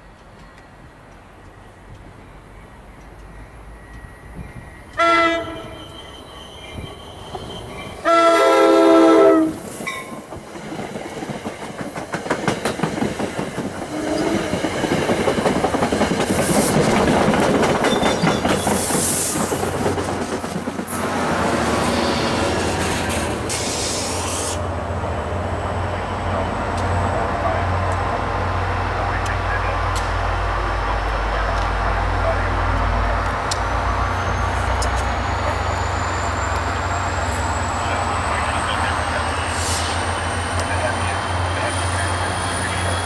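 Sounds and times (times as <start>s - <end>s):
train passing with wheels clacking: 0.0s - 43.0s
train horn: 5.0s - 6.2s, 8.0s - 9.6s.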